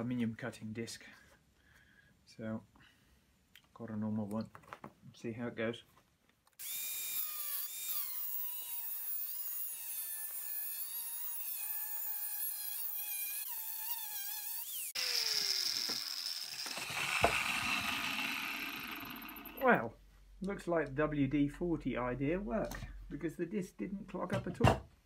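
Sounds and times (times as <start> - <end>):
angle grinder cutting metal: 6.6 - 19.7
knock: 24.3 - 24.9.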